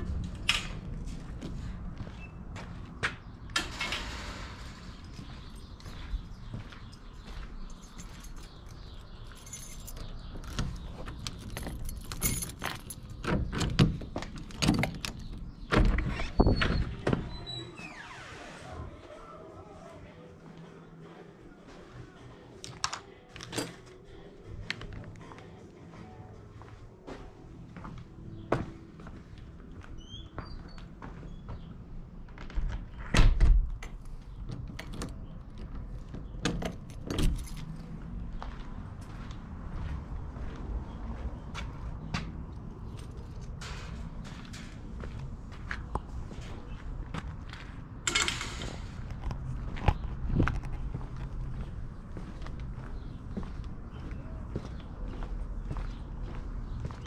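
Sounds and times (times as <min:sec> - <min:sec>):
keys jangling: 0:07.7 - 0:13.7, 0:36.6 - 0:37.9.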